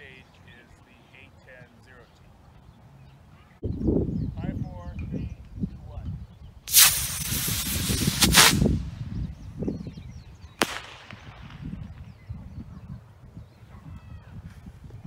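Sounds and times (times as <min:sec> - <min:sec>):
rocket motor hissing: 0:06.7 - 0:08.8
ejection charge pop: 0:06.7 - 0:08.9, 0:10.6 - 0:11.9.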